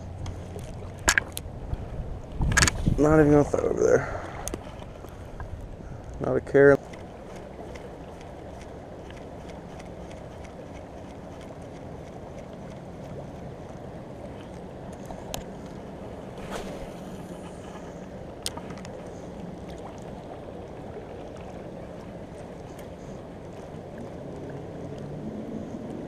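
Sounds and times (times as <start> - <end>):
low hum: 0.0 - 26.0
wind: 0.0 - 26.0
fishing rod cast swish: 16.4 - 17.8.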